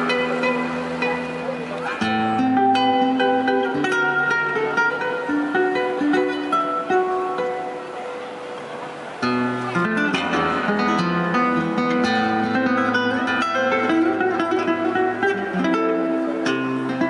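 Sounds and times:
acoustic guitar music: 0.0s - 17.0s.

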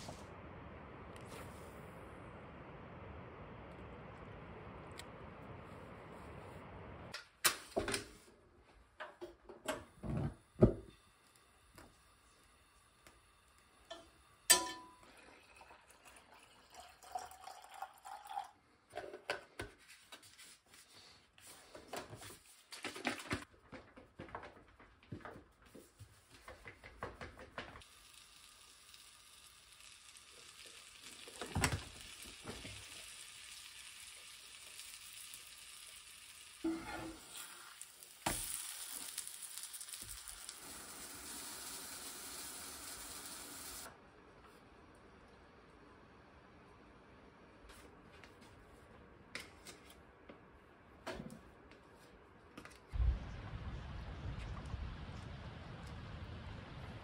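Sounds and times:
batter sizzling in frying pan: 27.8s - 43.9s.

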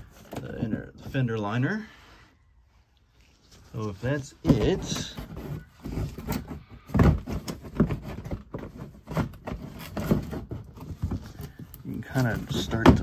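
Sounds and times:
plastic liner knocking and scraping: 4.3s - 13.0s.

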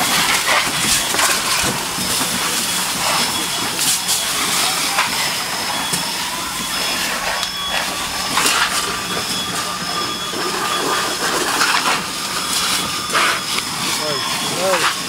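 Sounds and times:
low steady hum: 0.0s - 13.0s
short high-pitched beeps: 0.0s - 14.8s
fire cracks and pops: 0.0s - 15.0s
fire rushing hiss: 0.0s - 15.0s.

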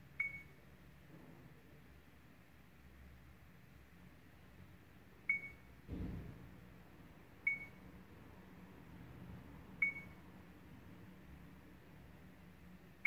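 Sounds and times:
low handling thump: 5.9s - 6.4s.

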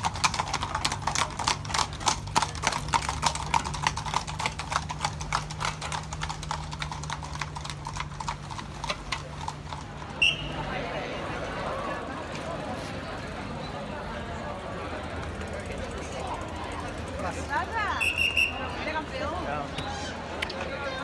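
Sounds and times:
horse hooves on pavement: 0.0s - 10.6s.

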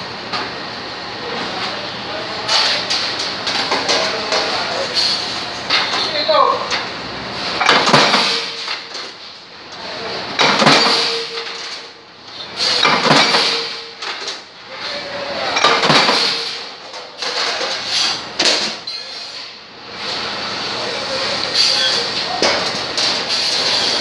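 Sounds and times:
punch press metallic strikes: 10.4s - 11.5s, 12.8s - 13.9s.

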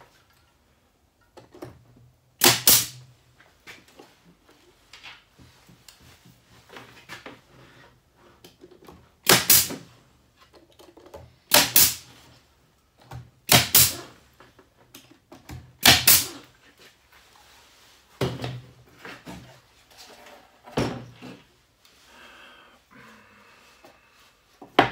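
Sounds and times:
pneumatic nailer shots: 2.4s - 3.0s, 9.2s - 9.9s, 11.5s - 12.1s, 13.4s - 14.2s, 15.8s - 16.4s.

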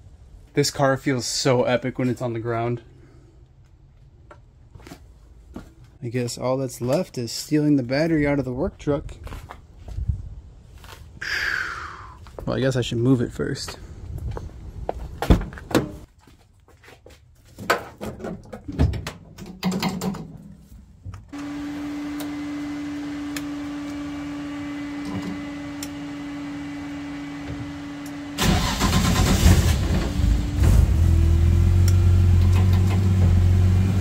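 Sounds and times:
car engine idling: 22.5s - 34.0s
car engine cranking: 28.0s - 33.6s.

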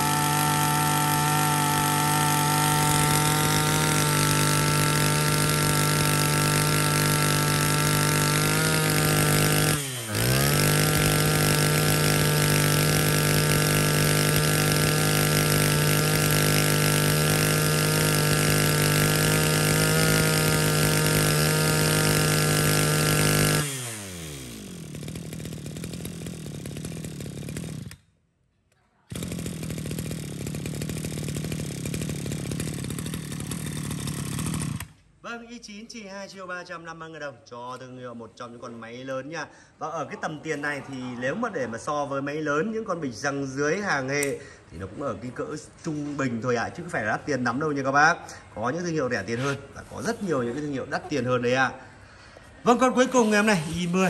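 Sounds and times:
brush cutter engine running: 0.0s - 28.0s, 29.1s - 35.0s, 52.4s - 54.0s.

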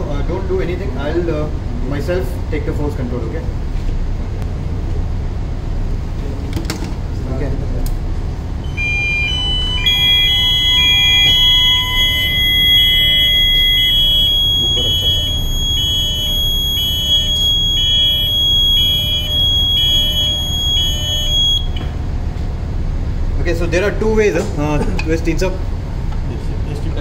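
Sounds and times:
engine-room machinery rumble: 0.0s - 27.0s
beeping alarm buzzer: 8.6s - 21.9s
steady high alarm tone: 8.6s - 21.9s.

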